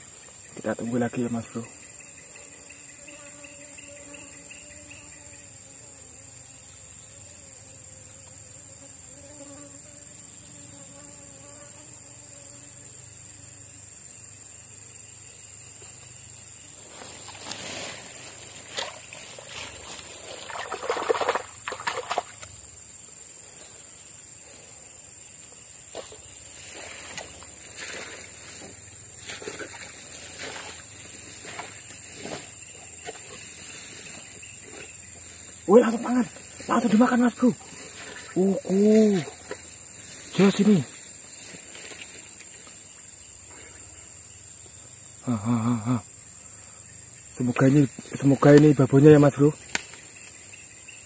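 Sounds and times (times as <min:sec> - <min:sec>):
insects droning: 0:00.0 - 0:51.0
rustling in dry grass and leaves: 0:16.7 - 0:21.4, 0:25.9 - 0:35.6, 0:37.6 - 0:42.8.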